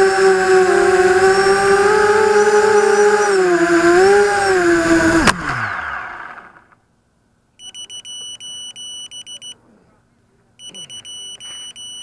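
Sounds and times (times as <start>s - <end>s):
quadcopter motors whining: 0.0s - 6.8s
high electronic beeper: 7.6s - 9.6s, 10.6s - 12.0s.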